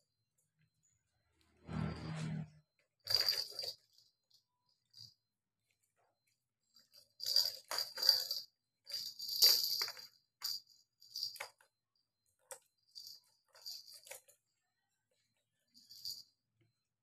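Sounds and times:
cat toys rattling and jingling: 3.0s - 5.2s, 6.7s - 11.7s, 12.4s - 14.5s, 15.7s - 16.3s.

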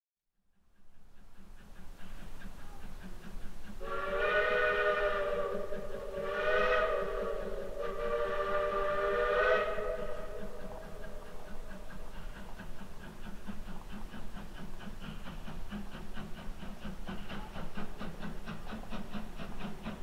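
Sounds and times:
steam locomotive chime whistle: 3.8s - 10.6s.

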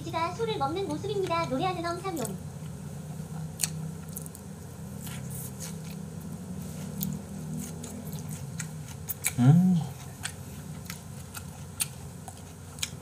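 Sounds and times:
chewing raw meat: 6.9s - 13.0s.

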